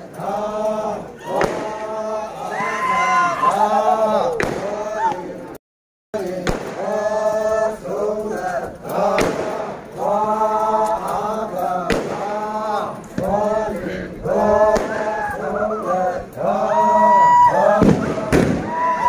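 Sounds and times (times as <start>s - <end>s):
men chanting in unison: 0.0s - 5.6s, 6.2s - 19.0s
sharp cracks: 6.4s - 7.1s, 9.0s - 9.9s, 11.9s - 12.4s, 17.8s - 19.0s.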